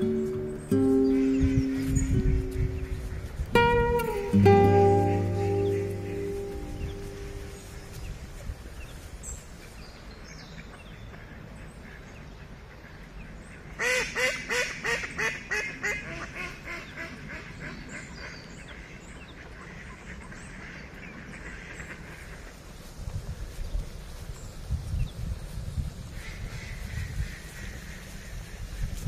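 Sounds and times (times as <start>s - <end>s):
small birds chirping: 0.0s - 12.4s
duck quacking: 0.1s - 7.6s.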